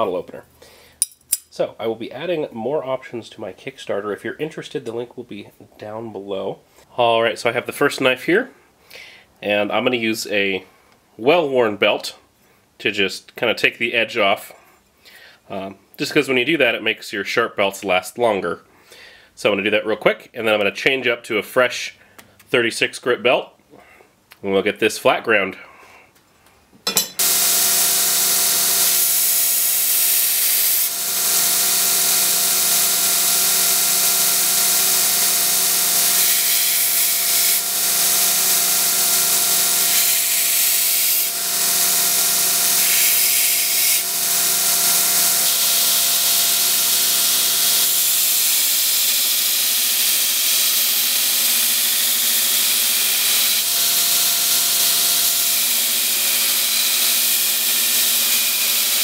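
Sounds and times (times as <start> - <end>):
motor hum: 27.2 - 48.2
steel hissing on grinder belt: 27.2 - 59.0.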